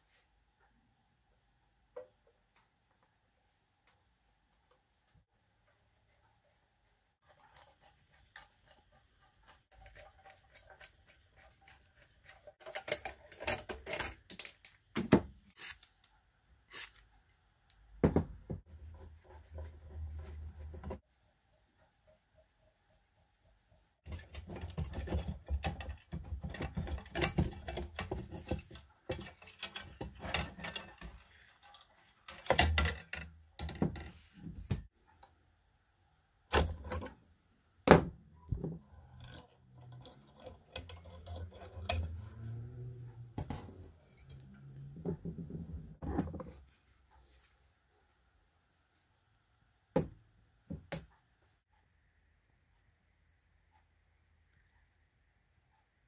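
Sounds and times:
tools scraping and knocking metal: 0:09.7 - 0:15.4, 0:24.1 - 0:34.2, 0:38.4 - 0:46.6.

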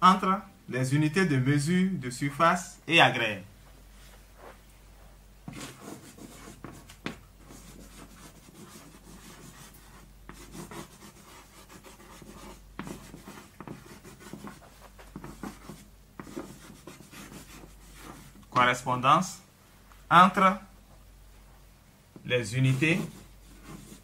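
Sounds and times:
chalk scratching on blackboard: 0:05.5 - 0:18.4, 0:22.6 - 0:24.0.

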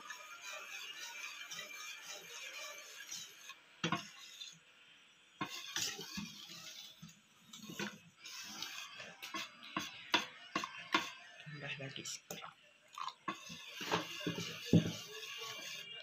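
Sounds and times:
whisk knocking against a bowl: 0:13.8 - 0:15.2.

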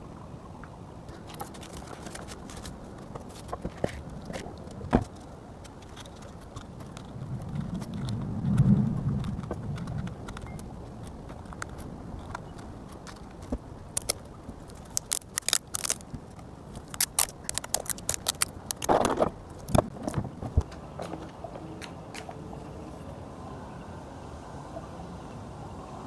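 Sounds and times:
adhesive tape pulled off roll: 0:14.0 - 0:19.8.

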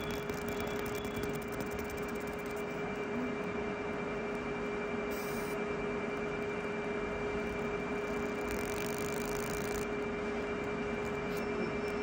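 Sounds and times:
machine hum with pitched tone: 0:00.0 - 0:12.0
noisy whir: 0:00.0 - 0:12.0.

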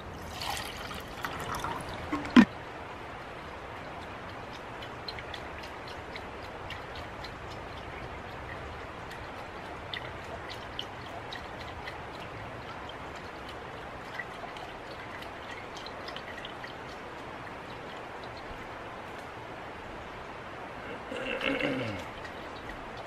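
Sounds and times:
water sloshing in metal pot: 0:00.0 - 0:02.5
light ticks on pot: 0:04.0 - 0:17.0.

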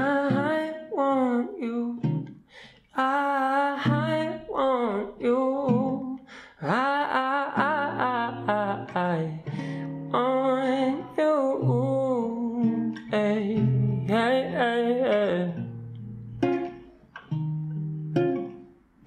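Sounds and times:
man singing: 0:00.0 - 0:02.2, 0:02.9 - 0:15.7
acoustic guitar strumming: 0:00.0 - 0:19.0.

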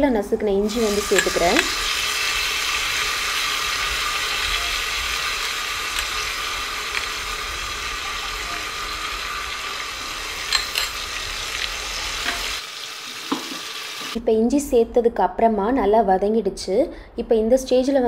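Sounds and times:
oil sizzling: 0:00.6 - 0:14.2
utensils clicking on glass and pot: 0:01.0 - 0:01.8, 0:05.3 - 0:07.4, 0:10.3 - 0:12.6.

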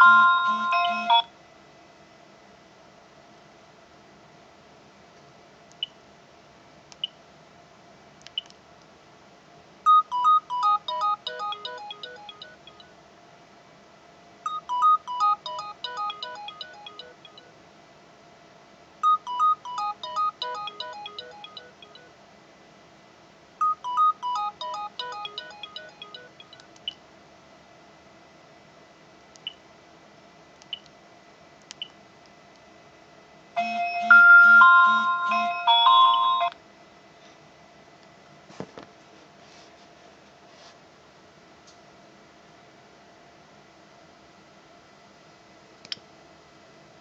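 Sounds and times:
keypad beeps: 0:00.0 - 0:01.3, 0:08.3 - 0:08.5, 0:09.9 - 0:12.9, 0:14.5 - 0:17.5, 0:19.0 - 0:22.1, 0:23.6 - 0:27.0, 0:33.6 - 0:36.6
phone ringtone: 0:00.0 - 0:01.3, 0:09.9 - 0:12.9, 0:14.5 - 0:17.6, 0:19.0 - 0:22.2, 0:23.6 - 0:26.6, 0:33.6 - 0:36.6.

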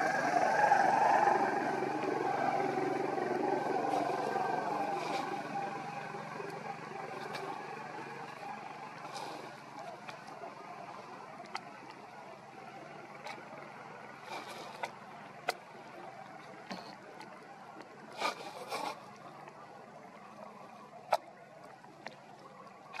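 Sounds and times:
rustling scrapes: 0:18.2 - 0:19.0.

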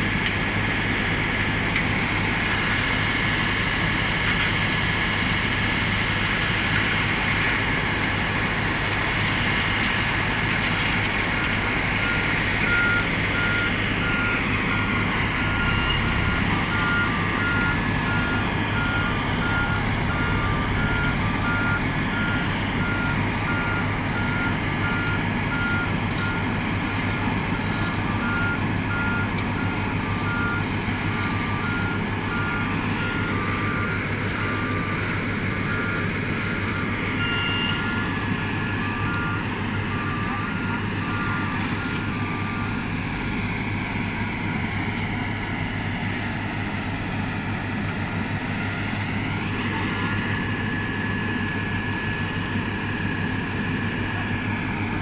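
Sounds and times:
diesel engine hum: 0:00.0 - 0:55.0
backup alarm beeping: 0:27.6 - 0:42.9
lower-pitched alarm beeping: 0:27.7 - 0:42.9.

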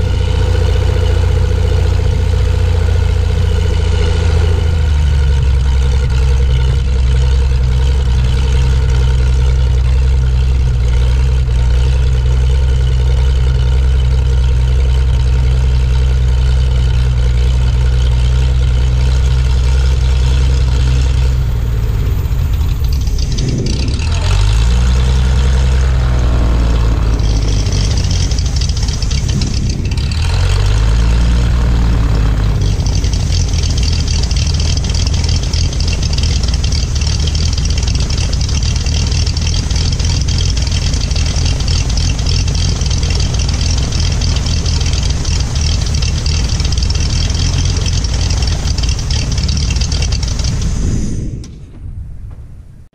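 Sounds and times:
light aircraft engine and propeller: 0:00.0 - 0:52.0.

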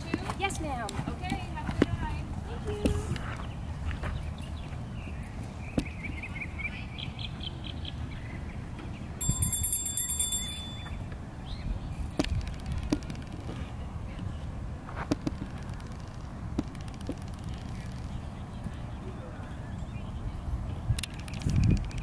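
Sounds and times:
birds chirping: 0:00.1 - 0:14.6, 0:15.4 - 0:22.0
loud high-pitched ringing: 0:09.2 - 0:11.1
sharp clicks: 0:15.1 - 0:18.1, 0:21.0 - 0:22.0.

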